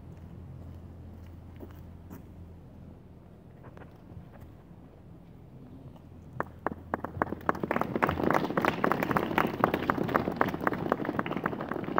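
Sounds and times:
group of people clapping: 0:06.4 - 0:11.9.

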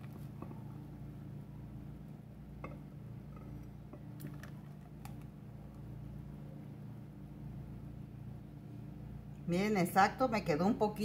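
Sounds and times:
steady low hum: 0:00.0 - 0:11.0
milkshake pouring: 0:02.6 - 0:05.9.

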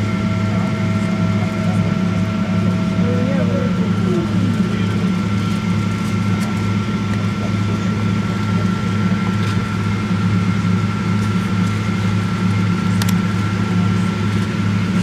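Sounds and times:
airplane cabin drone: 0:00.0 - 0:15.0
high engine whine: 0:00.0 - 0:15.0.

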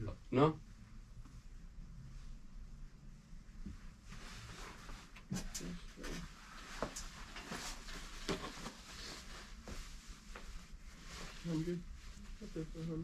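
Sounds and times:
light rustling and handling: 0:03.6 - 0:12.3.

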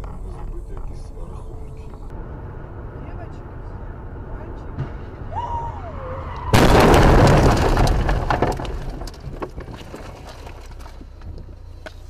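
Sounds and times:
car crash: 0:03.5 - 0:11.1
cracks and knocks: 0:06.6 - 0:12.0.

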